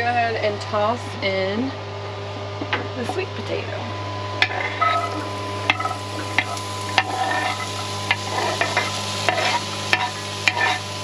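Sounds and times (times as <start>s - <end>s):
steady low hum: 0.0s - 11.0s
food sizzling in oil: 4.2s - 11.0s.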